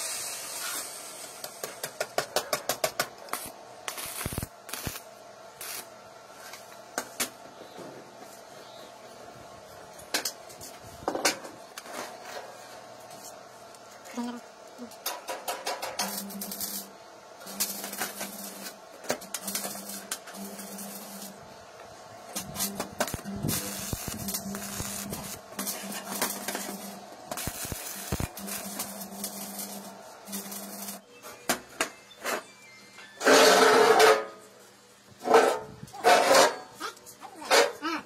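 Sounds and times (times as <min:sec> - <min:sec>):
welding arc crackling: 0:00.0 - 0:07.2, 0:15.0 - 0:31.0
steady electrical hum: 0:00.0 - 0:38.0.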